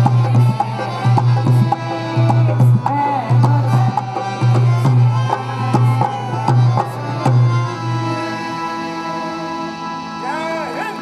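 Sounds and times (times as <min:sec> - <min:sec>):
hand drum beating: 0:00.0 - 0:07.6.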